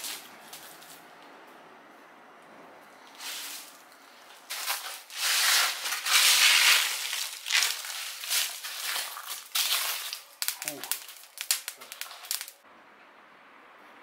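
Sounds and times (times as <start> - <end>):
dry leaves and twigs rustling: 0.0 - 1.1, 3.0 - 12.6.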